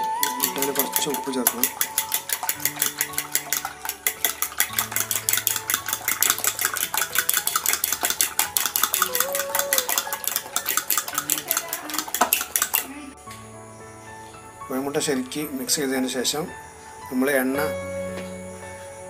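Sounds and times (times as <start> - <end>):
spoon beating eggs in plastic bowl: 0.0 - 13.0.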